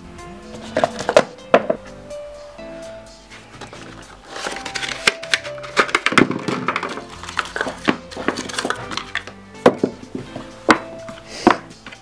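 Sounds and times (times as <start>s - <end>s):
soft background music: 0.0s - 12.0s
cardboard box being unpacked: 3.6s - 9.3s.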